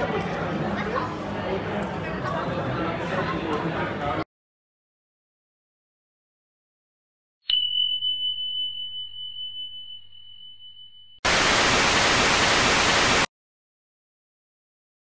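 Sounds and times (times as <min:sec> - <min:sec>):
bell ding: 0:07.5 - 0:11.2
loud static hiss: 0:11.3 - 0:13.3.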